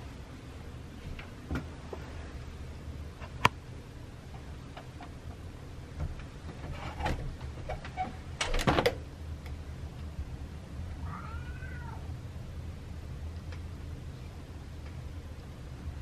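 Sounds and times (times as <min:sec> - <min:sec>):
light clicks and taps: 0:13.3 - 0:13.7.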